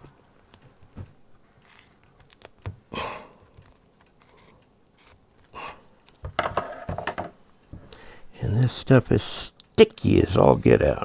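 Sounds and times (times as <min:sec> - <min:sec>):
tape rustling: 0:00.0 - 0:06.3.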